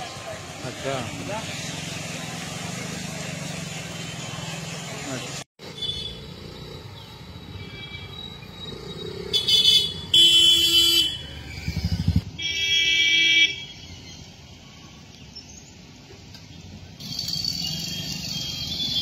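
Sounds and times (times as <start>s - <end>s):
hum of passing vehicles: 0.0s - 7.6s, 15.8s - 19.0s
vehicle horns honking: 5.6s - 6.3s, 9.3s - 11.5s, 12.3s - 13.9s, 17.5s - 19.0s.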